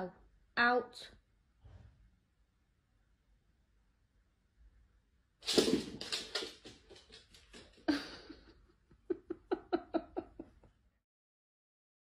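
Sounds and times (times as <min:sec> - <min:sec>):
dog claws scrabbling on wooden floor: 0:05.4 - 0:08.0.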